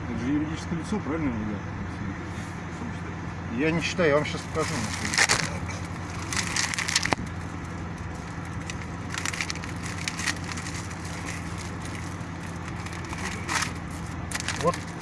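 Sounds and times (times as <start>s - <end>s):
steady low hum: 0.0s - 15.0s
paper documents rustling: 4.5s - 7.2s, 8.1s - 15.0s.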